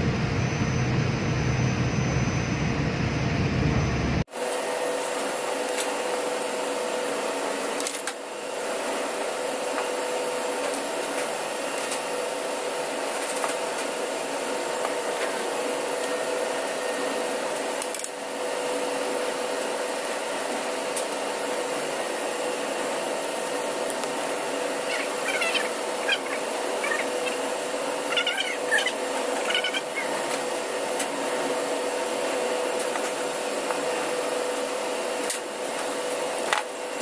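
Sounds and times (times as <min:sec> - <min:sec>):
machinery drone: 0:00.0 - 0:04.3.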